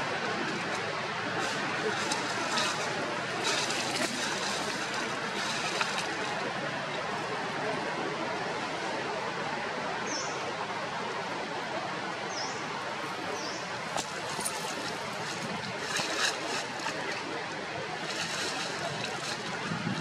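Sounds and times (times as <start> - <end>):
rushing outdoor background noise: 0.0 - 20.0.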